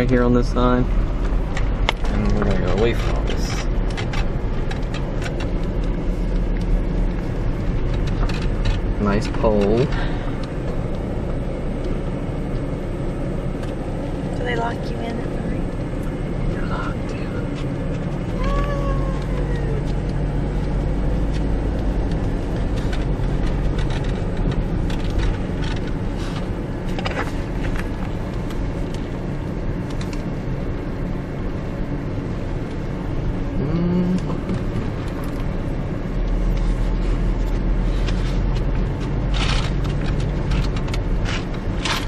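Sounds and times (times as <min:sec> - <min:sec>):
car engine and tyres rumbling: 0:00.0 - 0:42.0
small clicks and knocks: 0:07.7 - 0:08.9, 0:17.5 - 0:29.1.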